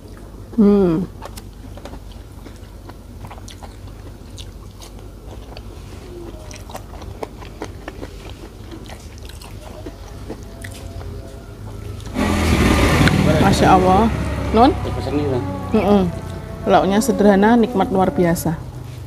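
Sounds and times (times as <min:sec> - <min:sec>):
person chewing food: 0:00.0 - 0:12.2.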